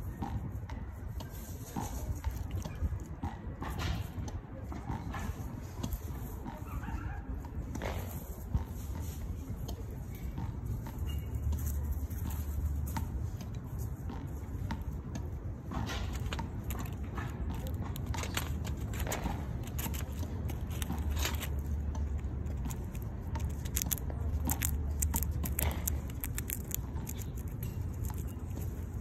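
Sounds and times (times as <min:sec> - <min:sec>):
squirrel moving on dry leaves: 0:01.4 - 0:03.0, 0:08.0 - 0:29.0
steady low rumble: 0:14.8 - 0:29.0.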